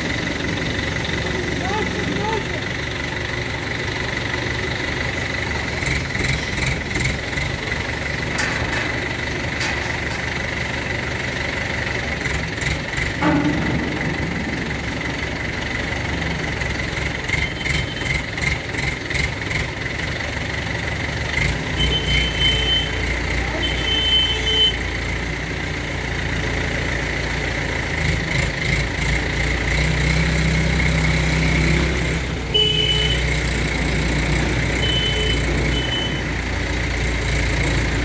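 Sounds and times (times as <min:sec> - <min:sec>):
truck engine idling with clatter: 0:00.0 - 0:38.0.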